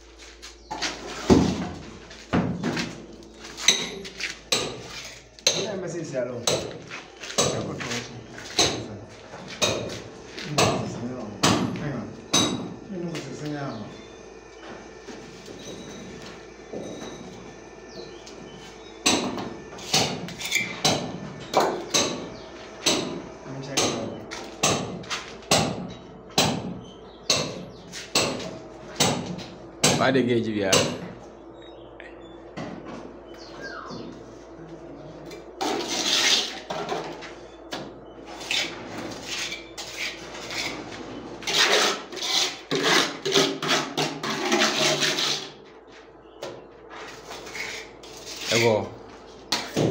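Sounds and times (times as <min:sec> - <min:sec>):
trowel scraping wet mortar: 0:35.6 - 0:36.7, 0:38.4 - 0:45.6.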